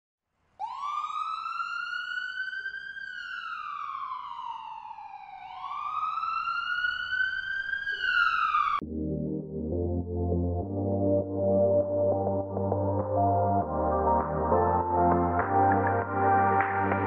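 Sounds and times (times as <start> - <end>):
siren wailing: 0.6 - 8.8.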